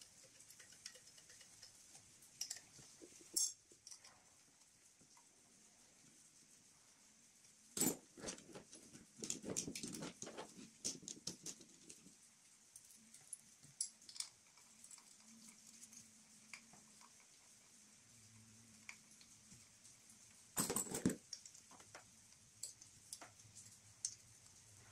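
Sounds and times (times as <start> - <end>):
metal parts clattering: 7.8 - 11.6, 20.6 - 21.2.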